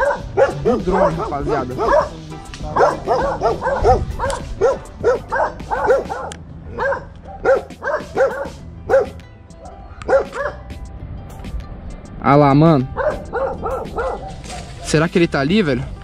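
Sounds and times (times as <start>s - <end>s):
dog barking: 0.0s - 10.6s, 12.9s - 15.0s.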